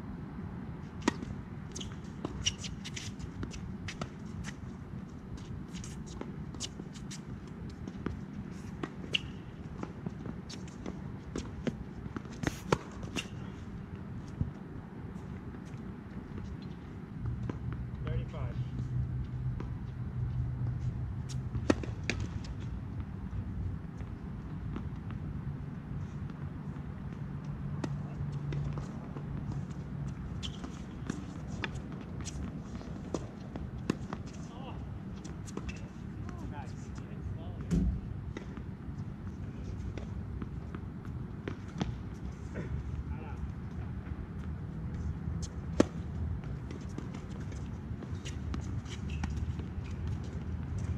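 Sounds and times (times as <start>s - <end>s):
tennis ball bouncing: 20.6s - 23.1s, 27.1s - 36.4s, 43.9s - 50.4s
racket striking tennis ball: 45.7s - 46.0s.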